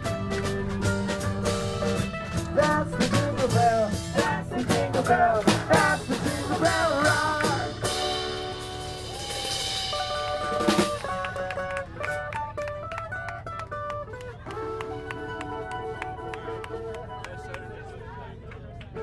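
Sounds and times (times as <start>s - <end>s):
strummed acoustic guitar: 0.0s - 16.6s
man singing: 2.4s - 8.0s.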